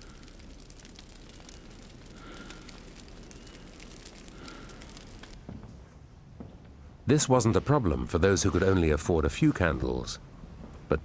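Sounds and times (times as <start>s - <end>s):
candles crackling and sputtering: 0.0s - 5.4s
low steady rustle: 0.0s - 10.9s.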